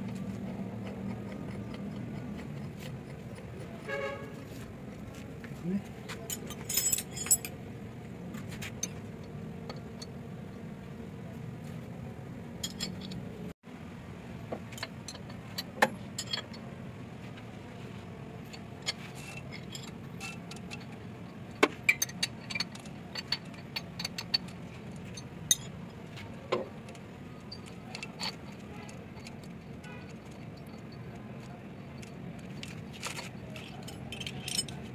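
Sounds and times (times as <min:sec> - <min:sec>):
spanner clinking on metal: 0:00.0 - 0:04.4, 0:06.2 - 0:07.6, 0:12.6 - 0:13.3, 0:14.7 - 0:16.7, 0:18.4 - 0:34.9.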